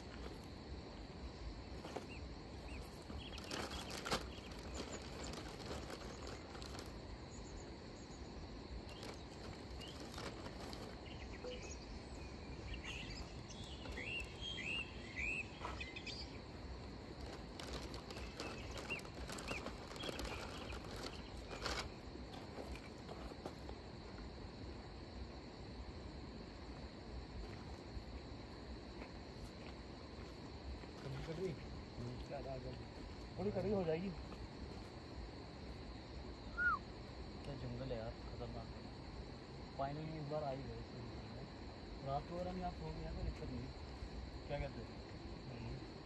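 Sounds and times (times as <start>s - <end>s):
high insect drone: 0.0s - 46.0s
bird chirping: 2.0s - 5.4s, 11.0s - 16.4s, 18.1s - 21.6s.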